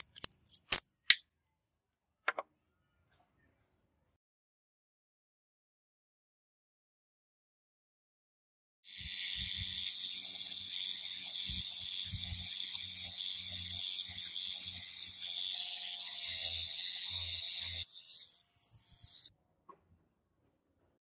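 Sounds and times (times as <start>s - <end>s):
electric toothbrush buzzing: 8.9s - 19.3s.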